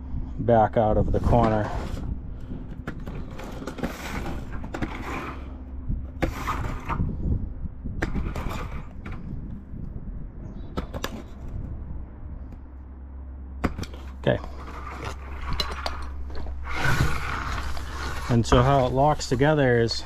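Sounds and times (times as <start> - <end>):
vinyl panel rustling: 13.8 - 20.0.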